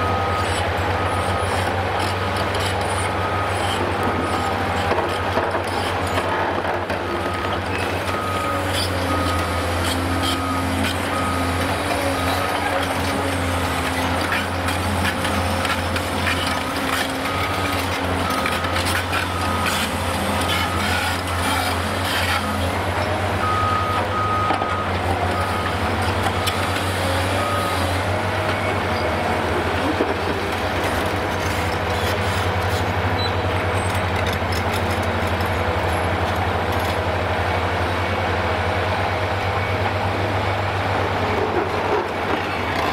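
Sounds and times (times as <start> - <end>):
reversing alarm beeping: 0.0 - 4.8, 7.0 - 13.1, 15.3 - 22.6, 23.4 - 29.2, 33.1 - 34.0
diesel excavator engine humming: 0.0 - 42.9.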